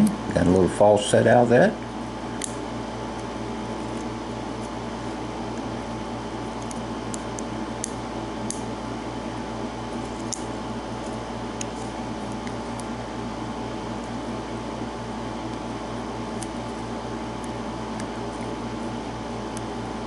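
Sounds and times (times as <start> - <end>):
steady background hum: 0.0 - 20.0.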